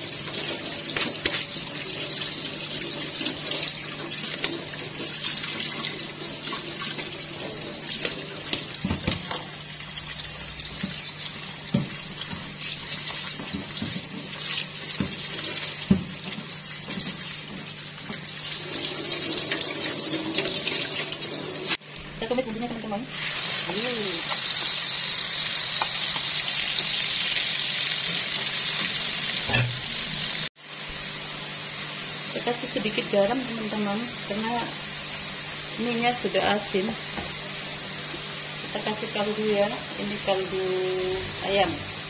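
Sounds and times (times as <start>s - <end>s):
tap water splashing in sink: 2.2s - 9.6s, 10.6s - 21.2s.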